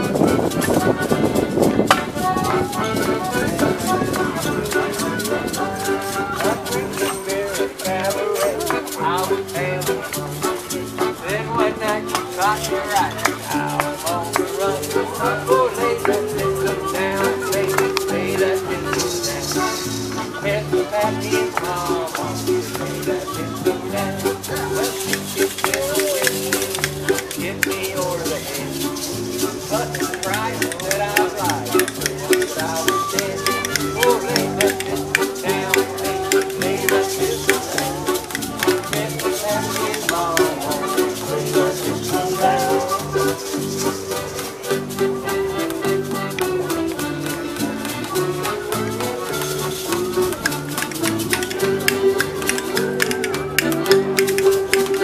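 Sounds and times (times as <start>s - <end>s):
accordion: 0.0s - 55.0s
light rhythmic clicking: 0.0s - 55.0s
rattling percussion beat: 0.0s - 55.0s
upright bass walking: 0.0s - 55.0s
man singing: 2.1s - 44.4s.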